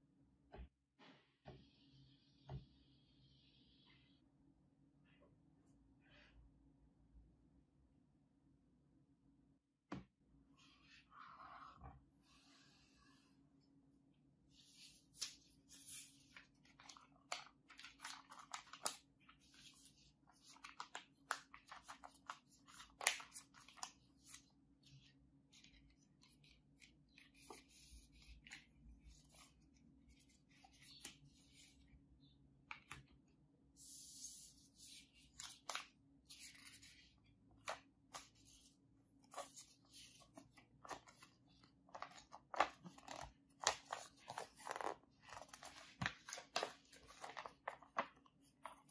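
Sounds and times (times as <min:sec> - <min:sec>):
paper rustling and crackling: 0:15.1 - 0:31.7, 0:34.8 - 0:48.9.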